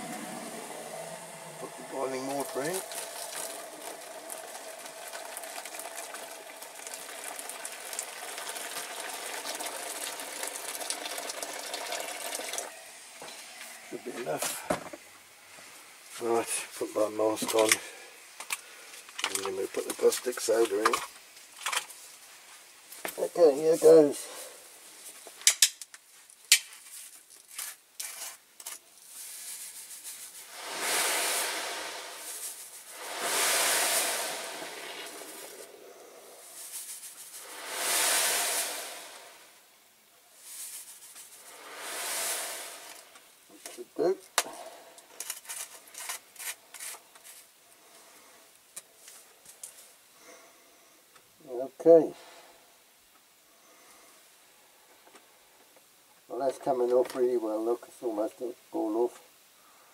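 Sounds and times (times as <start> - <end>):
water pouring into plastic tub: 0.0 - 12.8, 30.4 - 35.8, 37.2 - 39.6, 41.3 - 43.3.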